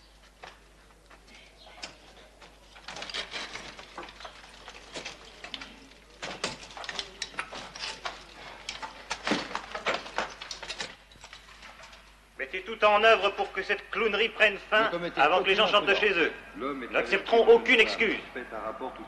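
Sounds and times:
rubble and timber clattering: 0:00.0 - 0:12.3.

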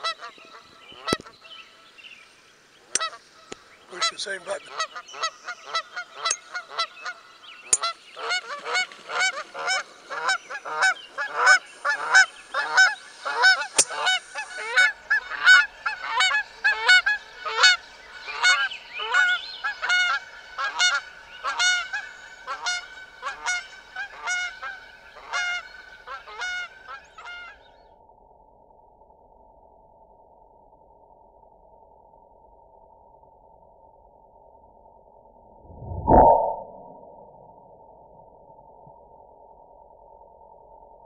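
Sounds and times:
geese honking: 0:03.0 - 0:07.2, 0:07.8 - 0:27.5.

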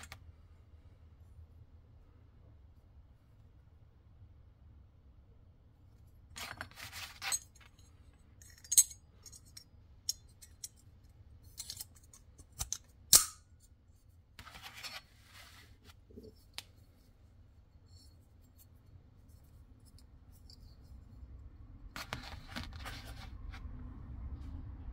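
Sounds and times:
padlock bolt scraping and clicking: 0:06.4 - 0:13.4.

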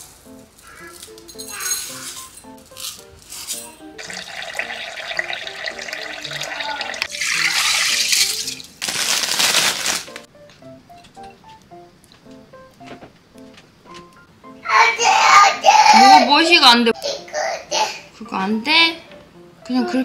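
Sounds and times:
soft background music: 0:00.0 - 0:20.0
water running: 0:03.9 - 0:08.9.

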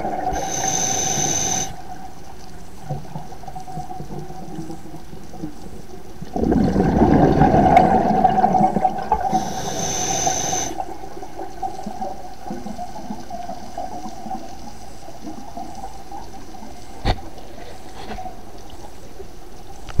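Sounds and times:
exhaled bubbles rushing: 0:00.0 - 0:00.6, 0:06.2 - 0:12.7
muffled underwater noise: 0:00.0 - 0:02.1, 0:03.7 - 0:11.2
regulator hissing inhale: 0:00.3 - 0:01.9, 0:09.3 - 0:10.9.

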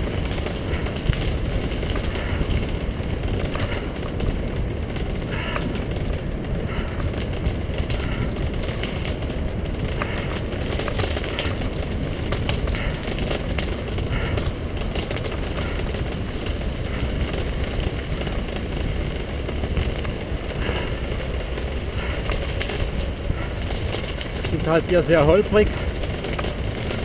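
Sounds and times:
tyres rumbling over gravel: 0:00.0 - 0:27.0.

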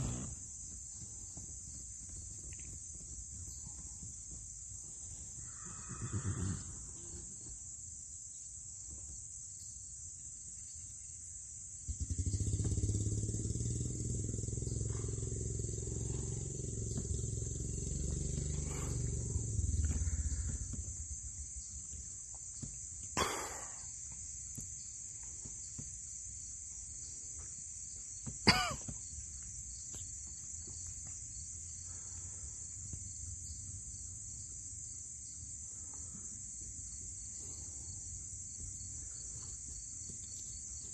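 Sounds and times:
crickets trilling: 0:00.0 - 0:40.9
low rumble: 0:14.9 - 0:21.6.

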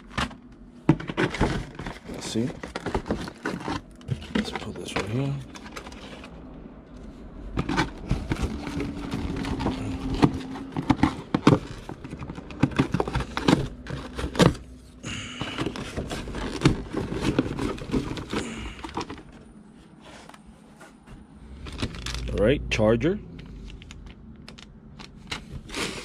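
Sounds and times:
packaging rustling: 0:00.0 - 0:20.4, 0:21.5 - 0:22.4.

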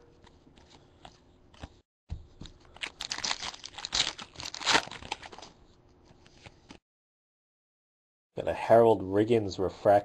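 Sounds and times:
foil wrapper crinkling and tearing: 0:02.6 - 0:05.5.

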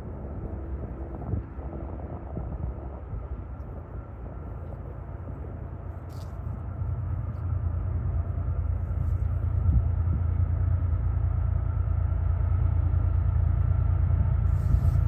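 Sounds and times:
freight train rumble: 0:00.0 - 0:15.0.

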